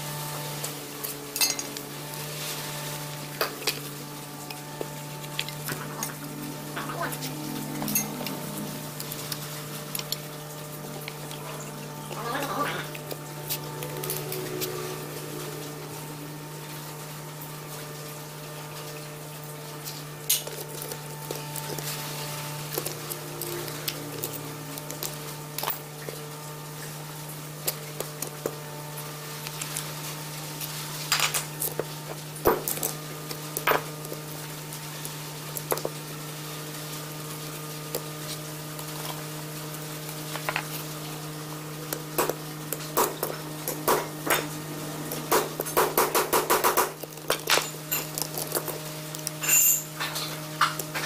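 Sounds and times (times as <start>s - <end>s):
steady hum: 0.0s - 51.0s
metal clinks and knocks: 49.4s - 50.3s.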